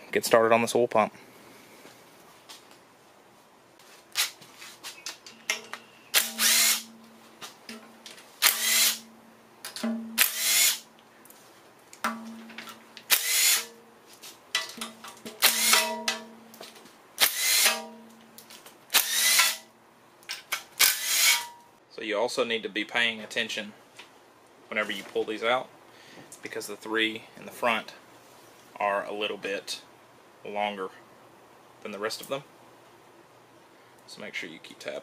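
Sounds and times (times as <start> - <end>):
impact driver loosening bolts: 15.4 - 16.2.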